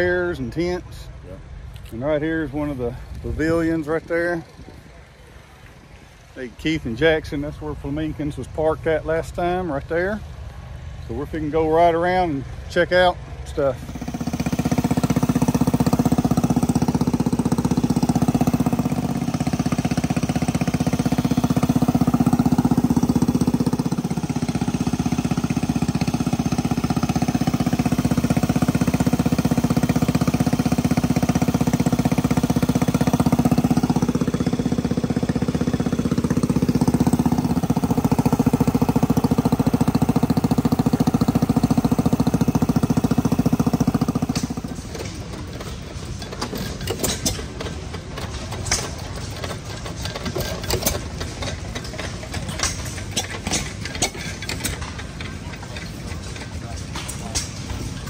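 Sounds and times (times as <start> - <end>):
small petrol engine running: 13.6 - 58.0.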